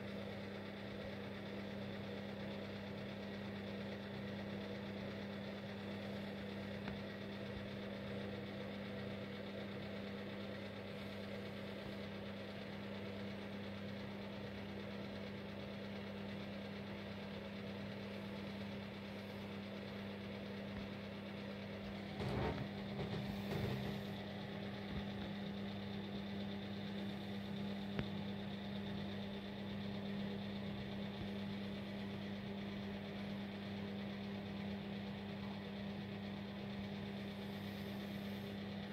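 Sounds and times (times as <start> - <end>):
low mechanical hum: 0.0 - 38.9
knocks and rustling: 21.9 - 24.2.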